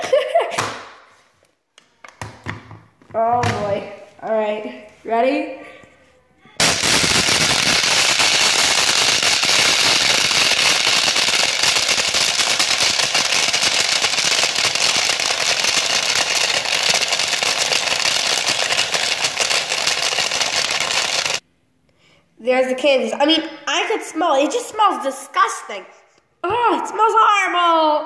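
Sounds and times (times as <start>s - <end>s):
blender running: 6.6s - 21.4s
candies rattling in blender jar: 6.6s - 21.4s.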